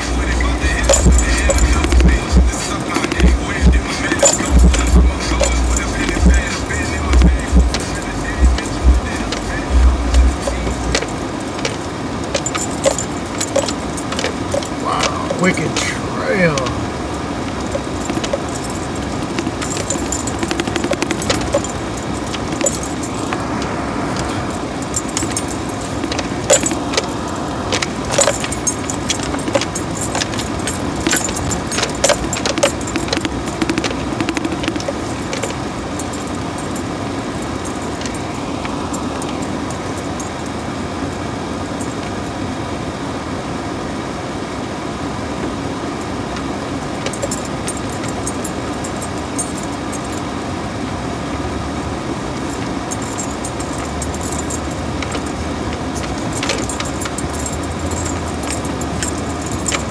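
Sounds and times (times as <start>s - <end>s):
vehicle road rumble: 0.0s - 59.9s
cabin rattles and clicks: 0.6s - 14.8s, 17.6s - 23.4s, 24.2s - 36.8s.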